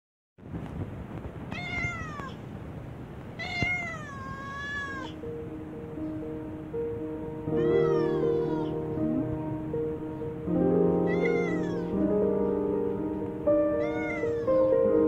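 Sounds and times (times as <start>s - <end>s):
cat meowing: 1.5s - 2.4s, 3.4s - 5.2s, 7.5s - 8.9s, 11.0s - 12.0s, 13.8s - 14.7s.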